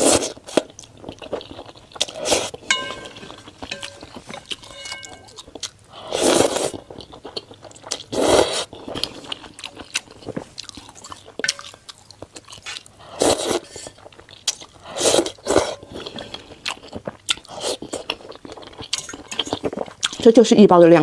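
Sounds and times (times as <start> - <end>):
slurping noodles: 0.0 - 0.7, 6.0 - 6.8, 8.0 - 9.3, 12.6 - 14.0, 14.8 - 18.1
wet chewing: 0.0 - 20.5.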